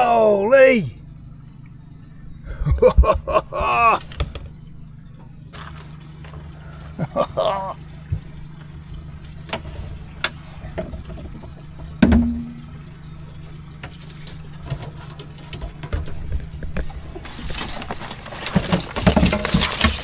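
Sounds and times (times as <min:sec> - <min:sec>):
steady low hum: 0:00.0 - 0:20.0
wire crab pot clinking and knocking: 0:12.0 - 0:12.7.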